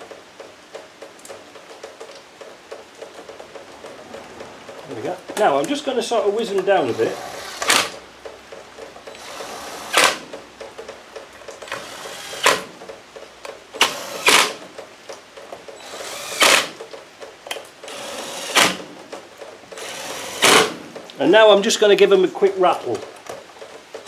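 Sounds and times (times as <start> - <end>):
cordless driver running screws: 6.8 - 8.0, 9.1 - 10.2, 11.6 - 12.7, 13.8 - 14.6, 15.8 - 16.8, 17.8 - 18.8, 19.8 - 20.7.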